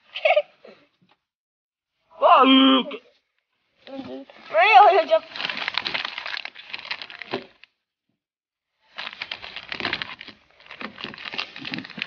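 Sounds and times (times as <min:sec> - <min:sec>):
plastic bag crinkling: 0:04.8 - 0:07.7, 0:08.9 - 0:12.0.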